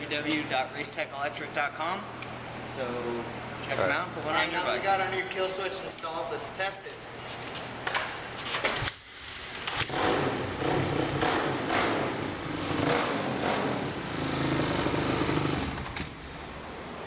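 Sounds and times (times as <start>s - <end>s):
motorcycle engine revving: 9.7s - 16.1s.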